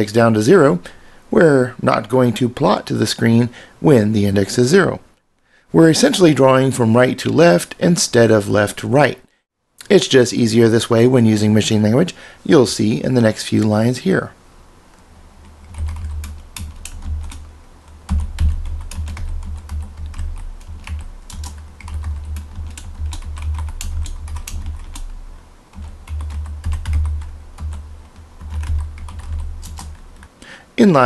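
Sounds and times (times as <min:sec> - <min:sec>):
typing on computer keyboard: 0:15.6 - 0:17.5, 0:18.1 - 0:25.1, 0:25.7 - 0:30.0.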